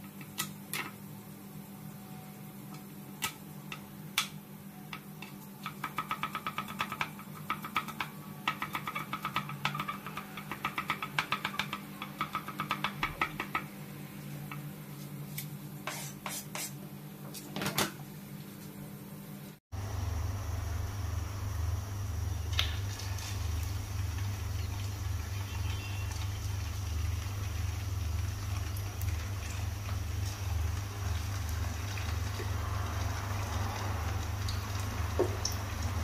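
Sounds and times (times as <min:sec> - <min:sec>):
steady low hum: 0:18.2 - 0:36.0.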